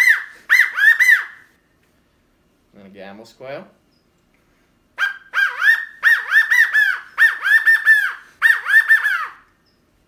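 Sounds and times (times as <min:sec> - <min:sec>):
quail call whistled notes: 0:00.0 - 0:01.5, 0:05.0 - 0:09.8.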